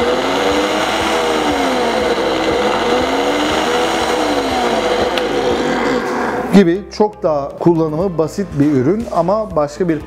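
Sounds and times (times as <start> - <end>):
blender motor running: 0.0 - 6.5.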